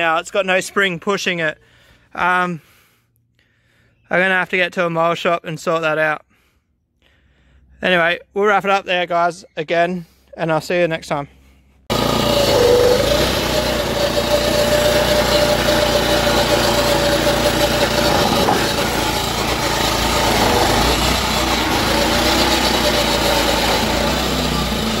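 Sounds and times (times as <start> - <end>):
lawnmower engine running: 11.9 - 25.0.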